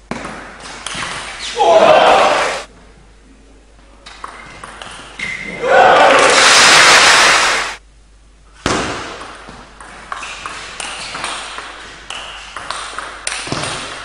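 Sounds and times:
crowd noise burst: 0:01.6 - 0:02.7, 0:05.6 - 0:07.8.

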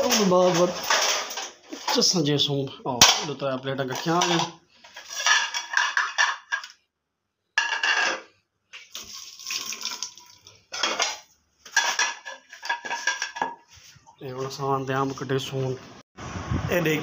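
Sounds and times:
clinks of plates and knife: 0:07.6 - 0:08.3, 0:10.8 - 0:13.6
tap water splashing onto plate: 0:08.8 - 0:10.5.

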